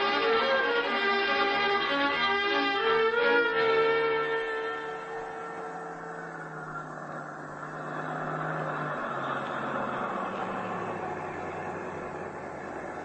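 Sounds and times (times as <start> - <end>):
low held music notes: 0.0 - 13.0
rushing noise effect: 4.8 - 13.0.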